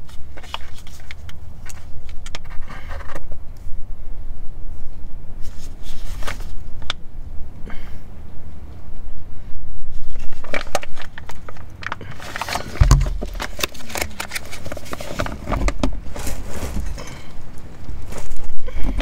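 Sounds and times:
low thump: 12.8s - 13.5s.

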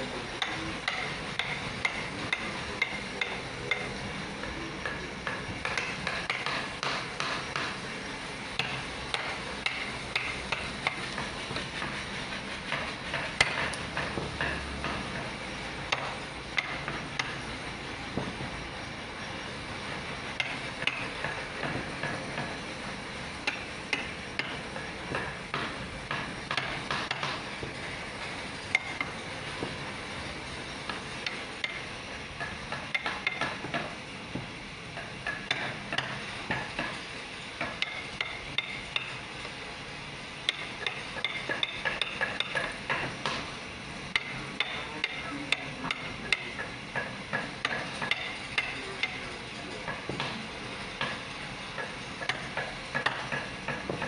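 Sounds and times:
mallet tapping chisel handle: 0.4s - 3.9s, 4.8s - 7.8s, 8.6s - 12.0s, 12.7s - 15.3s, 15.9s - 17.4s, 23.4s - 27.4s, 30.9s - 37.0s, 37.6s - 39.2s, 40.5s - 43.4s, 44.2s - 49.2s, 51.8s - 54.0s.

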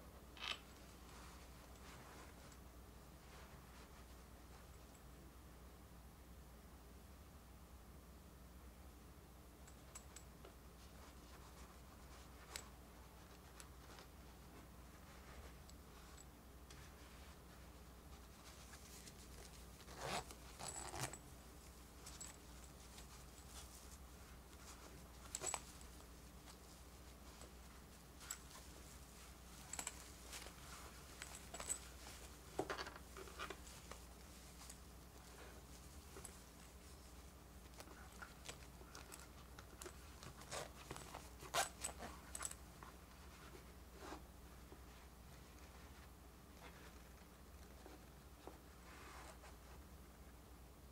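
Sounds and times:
fabric rustling: 0.4s - 5.0s, 9.7s - 49.9s
small zipper rasping open: 18.7s - 21.3s, 37.7s - 42.5s
zipper being closed: 19.8s - 21.2s, 40.2s - 42.1s.

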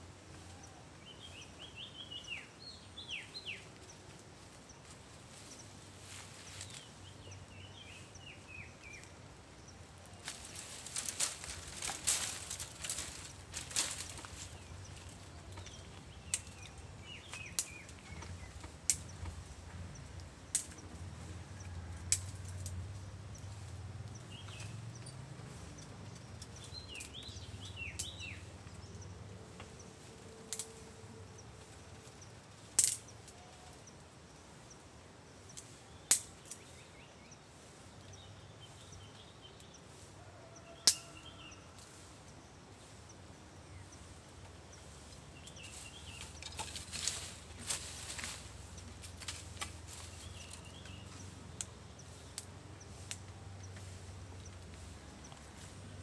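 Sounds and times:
birds chirping: 0.0s - 56.0s
dry twigs snapping: 10.0s - 21.0s, 21.6s - 24.7s, 25.8s - 28.8s, 30.5s - 30.8s, 32.6s - 33.4s, 35.6s - 36.7s, 40.8s - 41.2s, 45.1s - 55.7s.

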